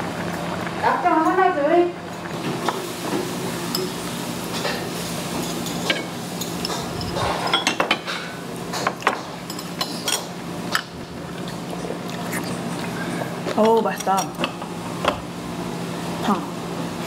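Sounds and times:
metal utensils clinking on dishes: 3.7 - 10.9, 13.6 - 14.6.

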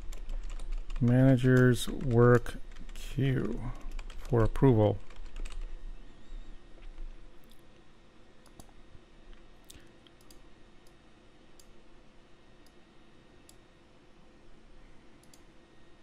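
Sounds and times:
low steady hum: 0.0 - 16.0
computer mouse clicks: 8.4 - 8.8, 9.6 - 11.0, 15.2 - 15.5.

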